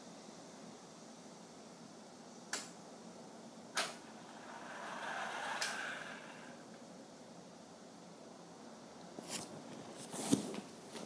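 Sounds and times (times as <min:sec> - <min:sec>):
toy car motors whirring: 0:04.0 - 0:06.7.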